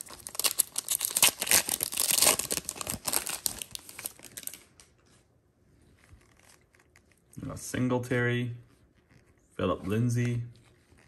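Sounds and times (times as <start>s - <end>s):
foil wrapper tearing and crinkling: 0.0s - 4.7s.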